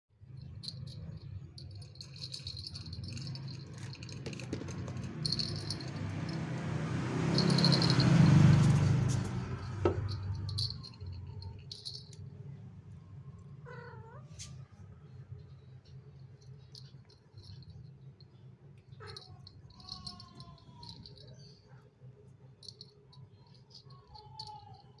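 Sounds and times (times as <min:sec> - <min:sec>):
toy ball rattling and jingling: 0:00.3 - 0:12.4, 0:15.8 - 0:18.1, 0:19.0 - 0:21.6, 0:22.6 - 0:25.0.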